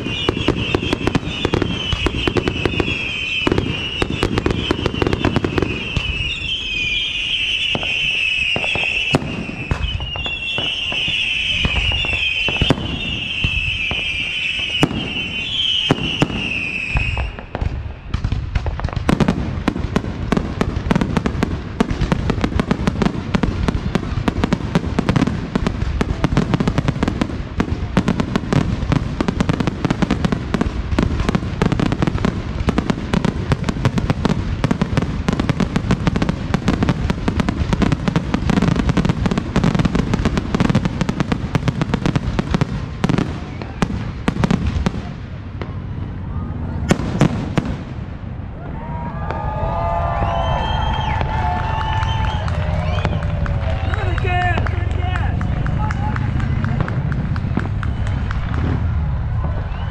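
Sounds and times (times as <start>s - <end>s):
firework whistles: 0.0s - 19.3s, 27.9s - 44.6s, 48.5s - 56.6s, 57.3s - 59.9s
firework bangs: 0.0s - 59.9s
firework barrage and crackle: 0.0s - 59.9s
deep rumble: 54.6s - 59.9s.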